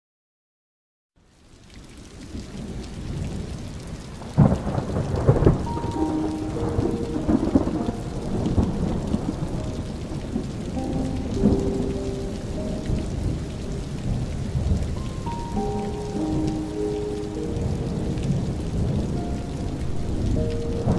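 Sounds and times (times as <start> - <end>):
steady rain: 1.2 - 20.9
rolling thunder: 4.2 - 20.9
loud thunderclap: 4.3 - 10.5
slow soft musical notes: 5.5 - 20.9.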